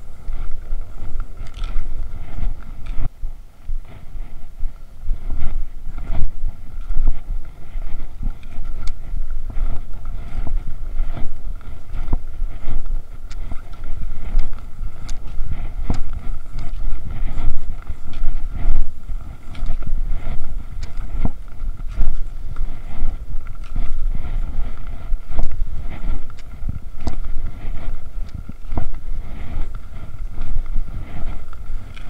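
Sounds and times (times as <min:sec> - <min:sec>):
wind rumbling on microphone: 0:00.0 - 0:32.0
sharp clicks and swishes: 0:00.2 - 0:03.1, 0:05.1 - 0:32.0.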